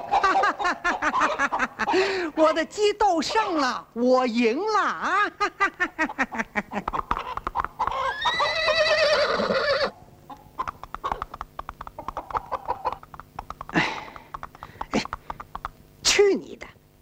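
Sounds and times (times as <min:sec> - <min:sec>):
horse neighing: 0:07.9 - 0:10.0
horse hooves clattering: 0:10.6 - 0:15.8.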